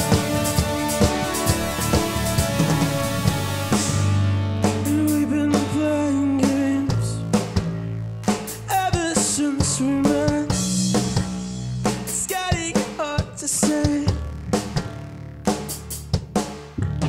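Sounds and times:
electric bass: 0.0s - 17.0s
rock drum beat: 0.0s - 17.0s
man singing: 4.8s - 7.3s, 8.6s - 10.6s, 12.1s - 14.3s.

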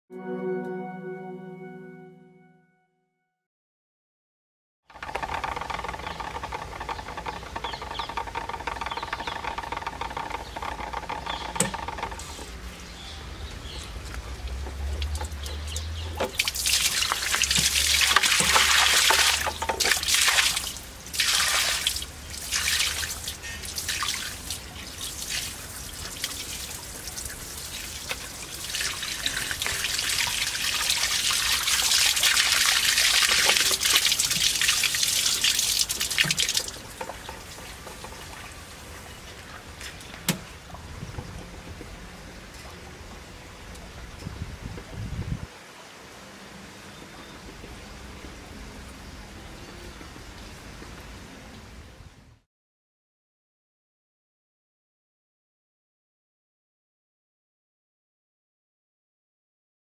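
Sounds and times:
water trickling: 12.5s - 44.1s
water rushing through pipes: 13.9s - 43.2s.

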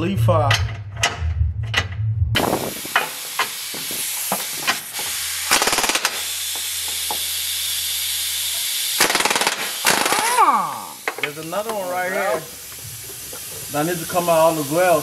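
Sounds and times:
impact wrench hammering: 0.5s - 7.4s, 8.5s - 11.8s
steady hiss: 2.4s - 15.0s.

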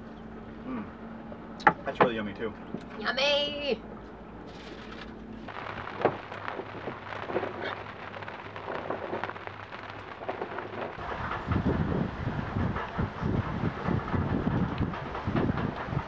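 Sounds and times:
low rumble: 3.8s - 16.0s
rain hissing: 4.5s - 16.0s
raindrops tapping: 4.8s - 16.0s.

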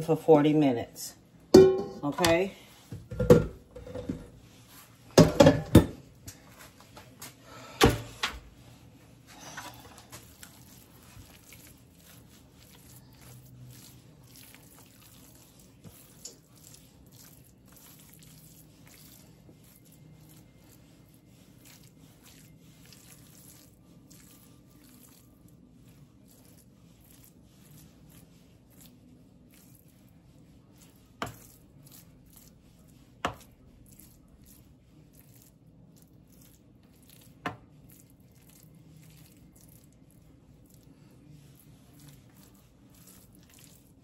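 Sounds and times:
dressing squishing and scraping: 0.0s - 44.0s
spoon knocking foil pan: 1.6s - 2.4s.

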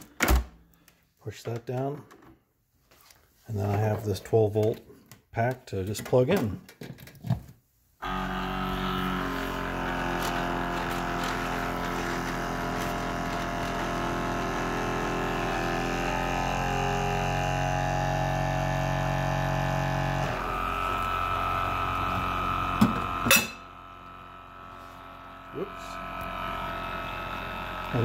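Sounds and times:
pump droning: 8.0s - 28.0s.

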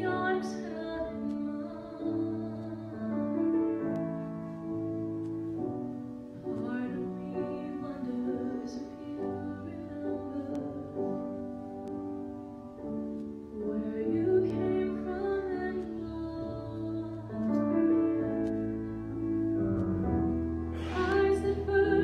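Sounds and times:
woman singing: 0.0s - 3.9s, 6.5s - 11.4s, 13.5s - 18.3s, 20.8s - 22.0s
instrumental accompaniment: 0.0s - 22.0s.

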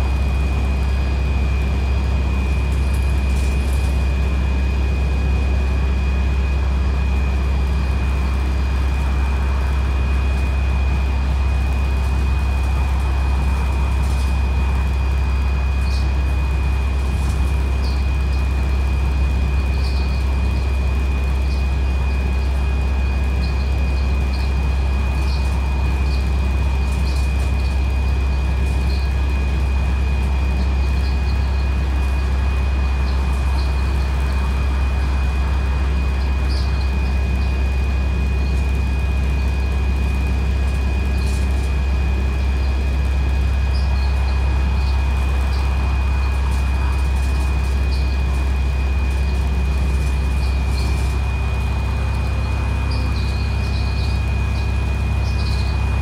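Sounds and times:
bus diesel engine drone: 0.0s - 56.0s
high whine: 0.0s - 56.0s
road noise: 7.4s - 20.6s.

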